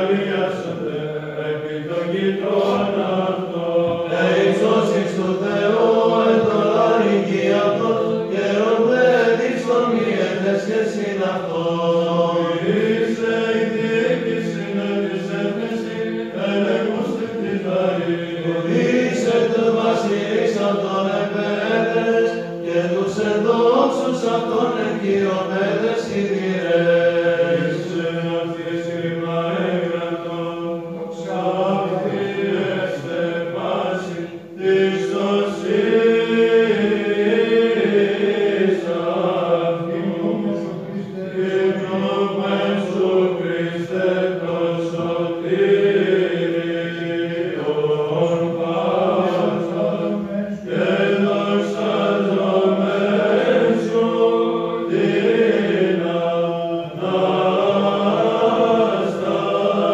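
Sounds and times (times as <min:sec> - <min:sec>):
male voices chanting: 0:00.0 - 0:59.9
held drone note: 0:39.9 - 0:41.0.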